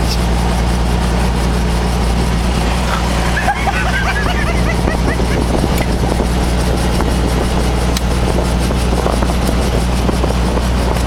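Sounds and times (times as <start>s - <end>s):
helicopter engine and rotor drone: 0.0s - 11.0s.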